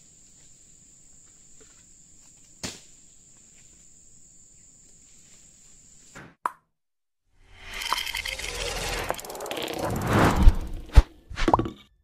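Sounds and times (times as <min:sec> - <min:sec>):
high-pitched insect drone: 0:07.6 - 0:10.1.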